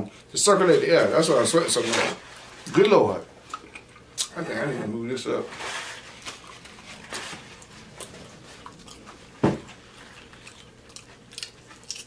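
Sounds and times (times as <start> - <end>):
paper towel rustling: 0.8 - 2.8, 5.3 - 10.2.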